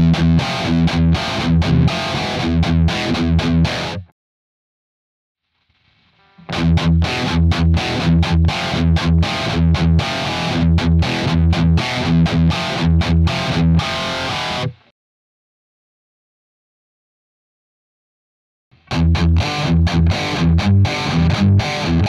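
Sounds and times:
distorted electric guitar riff: 0.0s - 4.1s, 5.6s - 14.9s, 18.8s - 22.0s.

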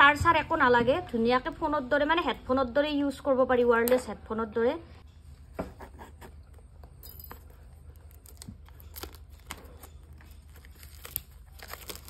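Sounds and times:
plastic wrap crackling: 7.9s - 12.0s.

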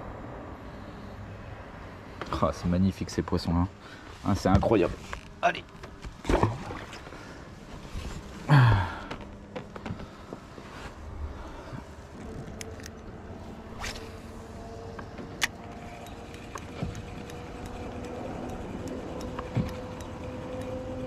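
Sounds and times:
mechanical hum rising in pitch: 11.9s - 21.0s.

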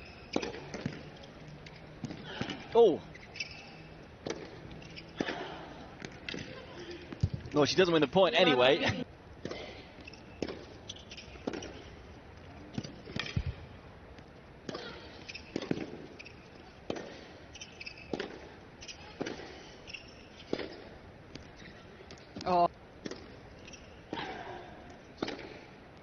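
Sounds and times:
ball bouncing on hard court: 0.1s - 1.1s, 2.0s - 7.6s, 9.4s - 12.0s, 12.7s - 19.6s, 20.4s - 21.5s, 22.1s - 24.3s, 25.2s - 25.6s
racket hitting tennis ball: 0.3s - 1.1s, 4.2s - 7.5s, 10.3s - 12.0s, 12.7s - 13.7s, 14.6s - 21.4s, 22.4s - 23.4s, 25.2s - 25.6s.

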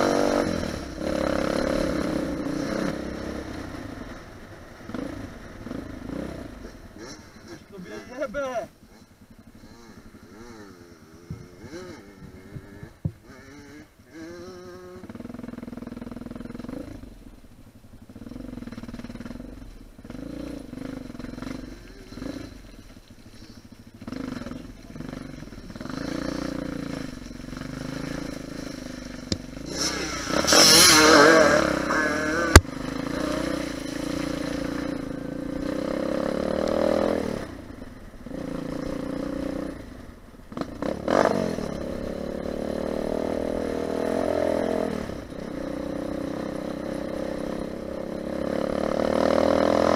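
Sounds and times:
motorcycle engine revving: 0.0s - 49.9s
rush of noise: 25.0s - 37.5s.

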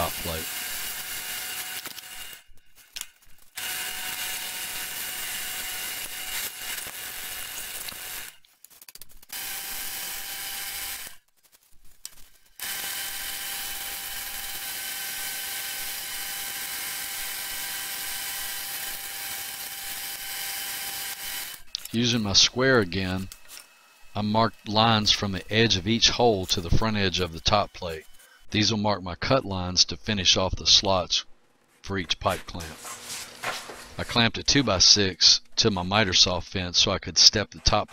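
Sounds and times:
drill bit cutting plywood: 0.0s - 2.5s, 3.5s - 8.4s, 9.3s - 11.2s, 12.6s - 28.5s
drill press motor whine: 0.0s - 8.4s, 9.4s - 11.2s, 12.6s - 28.5s.

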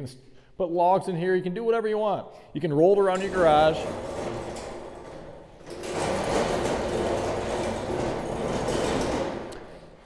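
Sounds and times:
cart rolling on concrete floor: 3.0s - 10.0s.

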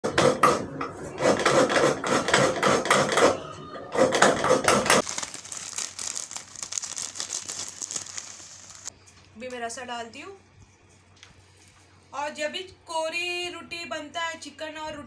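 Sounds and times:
plastic bag crinkling: 5.0s - 8.9s.

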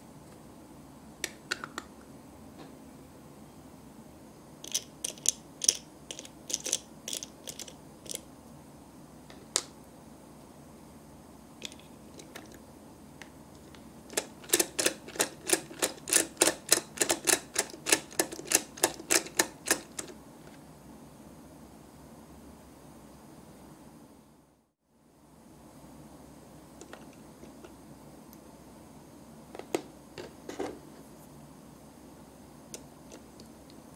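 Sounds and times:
plastic toy parts clicking: 4.6s - 8.2s, 14.1s - 20.1s.

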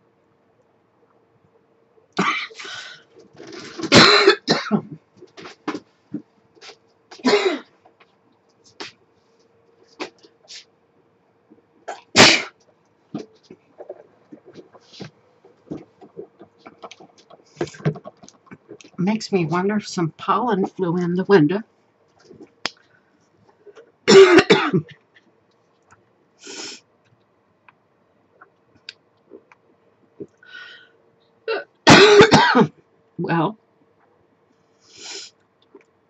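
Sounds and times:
woman coughing: 2.2s - 2.6s, 3.8s - 5.0s, 7.2s - 7.7s, 24.1s - 24.9s, 31.5s - 32.7s.

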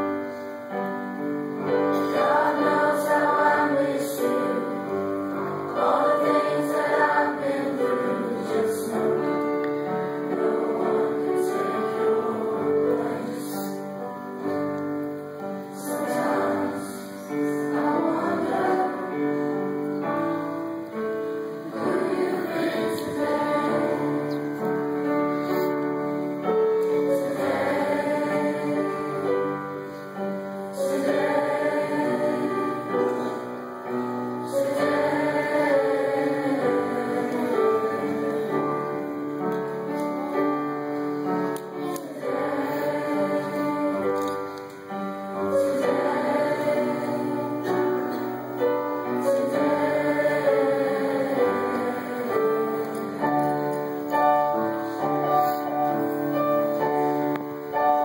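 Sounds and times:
mixed choir singing: 0.0s - 58.0s.

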